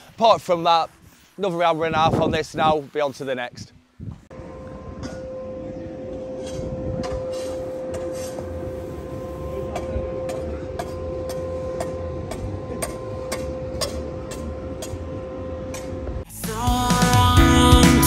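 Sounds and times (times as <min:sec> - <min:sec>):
steady mechanical hum: 0:00.0 - 0:16.3
low rumble: 0:04.1 - 0:16.3.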